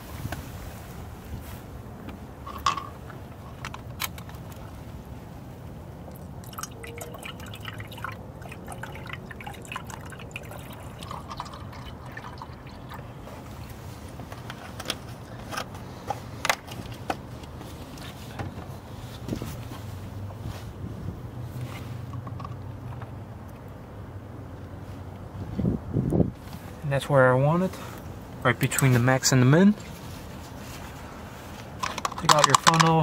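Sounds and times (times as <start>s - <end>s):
liquid gurgling through funnel: 6.4s - 13.2s
sharp clicks and knocks: 31.8s - 33.0s.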